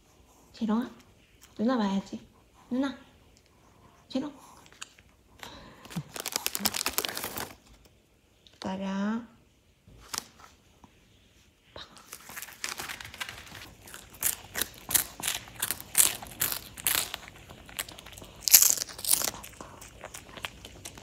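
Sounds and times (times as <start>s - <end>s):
dog crunching and chewing treat: 4.5s - 7.6s, 12.0s - 21.0s.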